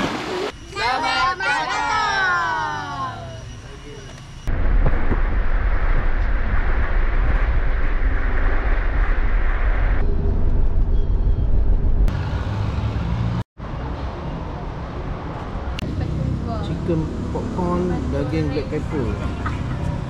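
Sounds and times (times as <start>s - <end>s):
moving car rumble and road noise: 4.4s - 20.0s.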